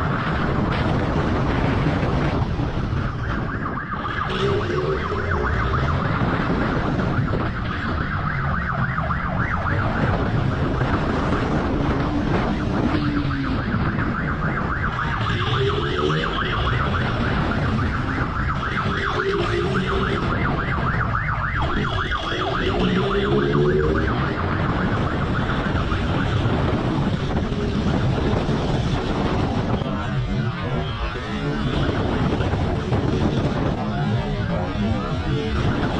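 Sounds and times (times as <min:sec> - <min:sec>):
siren pulsing yelp: 0:00.0 - 0:35.9
wind: 0:00.0 - 0:35.9.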